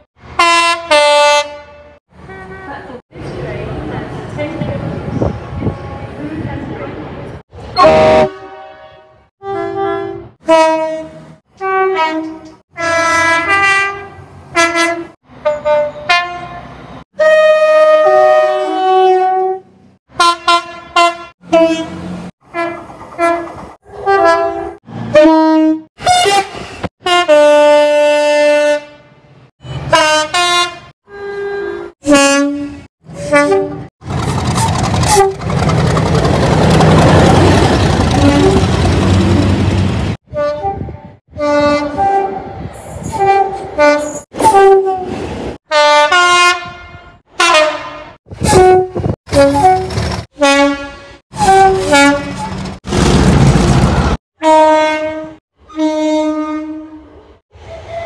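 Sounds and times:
train horn blasts: 0.4 - 2.8, 7.7 - 33.9, 38.1 - 39.5, 40.3 - 45.1, 45.7 - 52.5, 54.4 - 58.0
diesel locomotive rumbling past: 2.1 - 8.3, 21.4 - 26.8, 33.0 - 45.6, 48.3 - 55.4.

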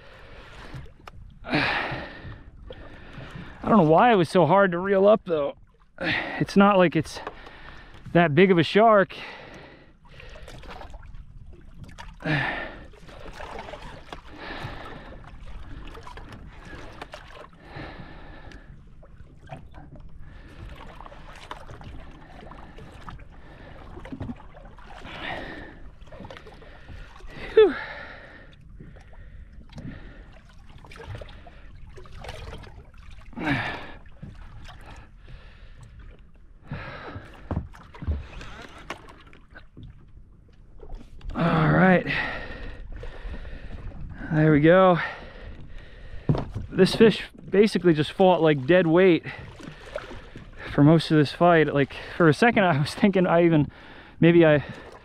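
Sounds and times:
water lapping against boat hull: 0.0 - 55.0
man grunting and gasping: 1.5 - 2.2, 12.2 - 12.9, 27.3 - 28.4, 33.4 - 34.0
short splashes: 9.2 - 35.1.

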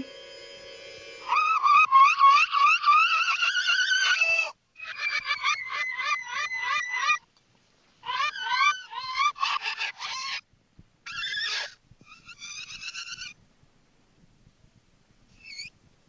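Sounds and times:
rising chirping squeals: 0.0 - 5.7.

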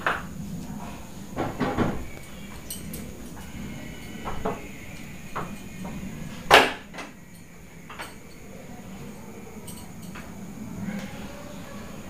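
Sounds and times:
footsteps on tiled floor: 0.0 - 7.1.

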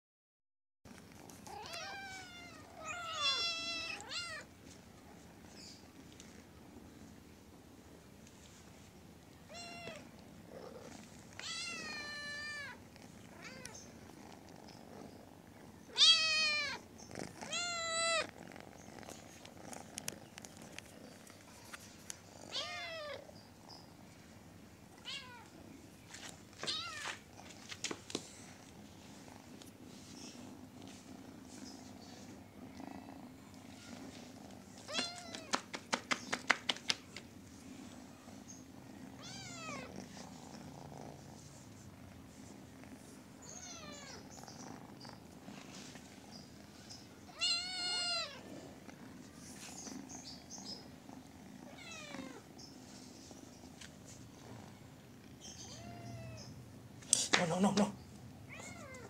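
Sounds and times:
kitten purring: 0.9 - 59.0
kitten meowing: 11.4 - 12.8, 47.3 - 48.4.

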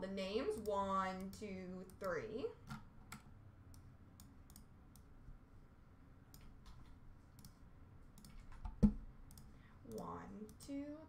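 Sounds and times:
computer mouse clicks: 0.6 - 5.1, 6.3 - 7.6, 8.2 - 10.7.

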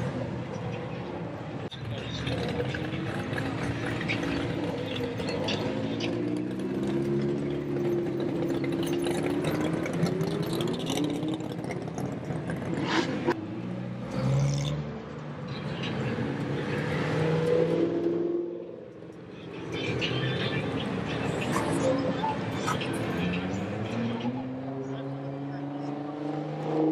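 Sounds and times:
sports cars revving past: 2.1 - 18.9, 19.7 - 26.9.

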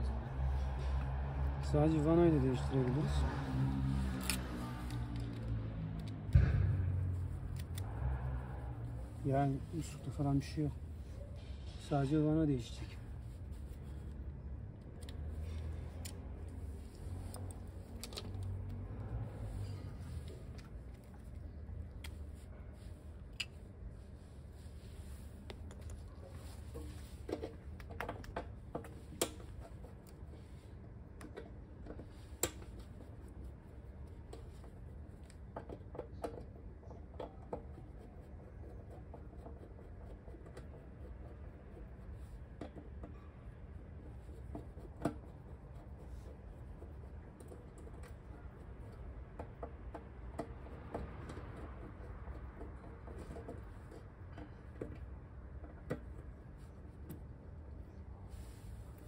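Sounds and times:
small clicks and scratching: 3.9 - 6.2, 13.5 - 22.4, 31.1 - 57.4.

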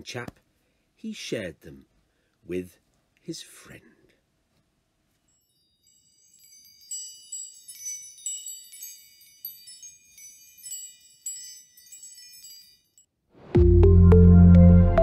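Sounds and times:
metal chimes ringing: 5.3 - 13.1.

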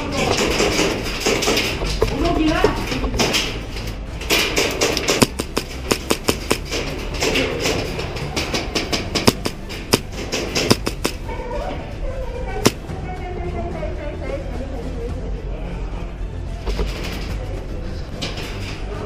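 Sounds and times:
airsoft guns firing: 5.0 - 6.9, 9.0 - 11.3, 12.6 - 12.9.

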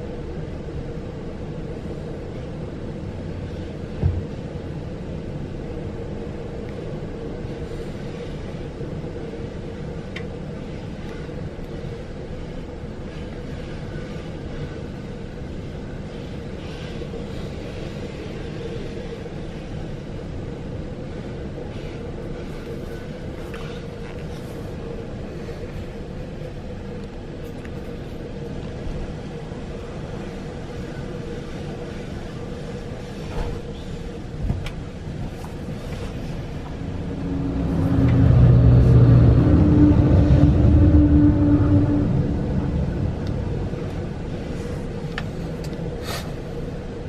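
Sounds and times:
locomotive engine drone: 0.0 - 47.0
steady hum: 0.0 - 47.0
train wheels rumbling on rails: 0.0 - 47.0.

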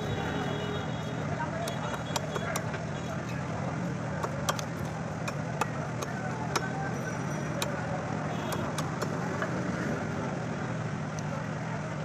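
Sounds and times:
street traffic drone: 0.0 - 12.0
sharp clicks and knocks: 1.6 - 2.9, 4.1 - 6.9, 7.5 - 9.6.

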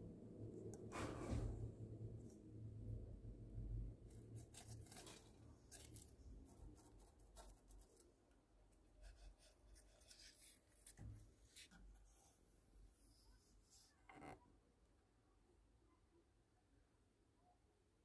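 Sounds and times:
faint scratching and rustling: 4.1 - 14.5.

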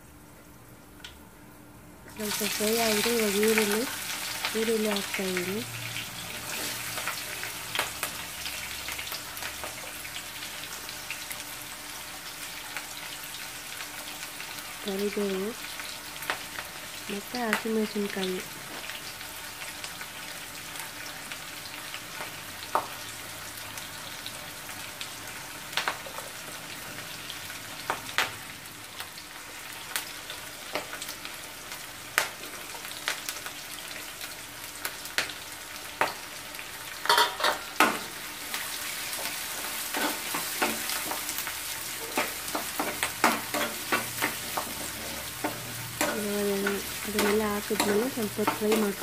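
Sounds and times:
onions sizzling in hot oil: 2.1 - 49.0.

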